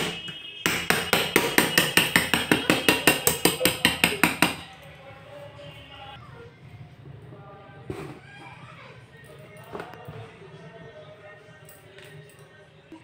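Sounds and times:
hands tapping a metal cake tin: 0:00.0 - 0:04.7.

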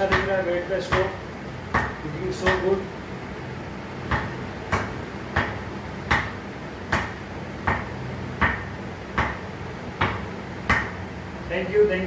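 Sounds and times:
ball knocking on cricket bat: 0:04.1 - 0:09.4, 0:10.0 - 0:11.0.

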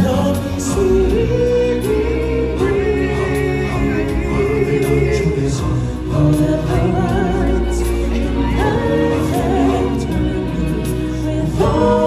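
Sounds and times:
choir-style group vocals: 0:00.0 - 0:12.0
lead singer on microphone: 0:00.0 - 0:12.0
live band playing: 0:00.0 - 0:12.0.

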